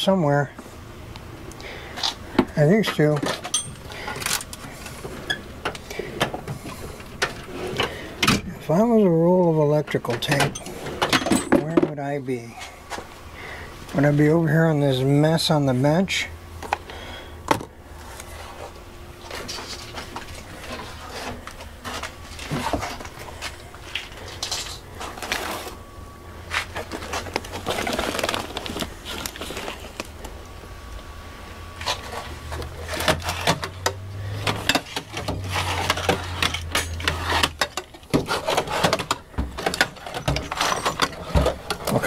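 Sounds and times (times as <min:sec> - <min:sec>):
objects clattering on a workbench: 0:10.1 - 0:12.0, 0:31.8 - 0:42.0
low hum: 0:12.2 - 0:42.0.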